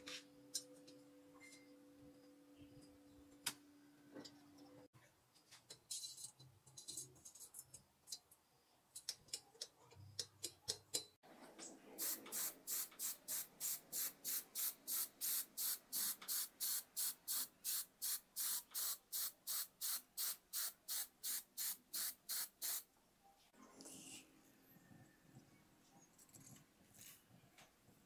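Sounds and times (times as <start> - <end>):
spray paint can hissing: 12.0 - 22.8.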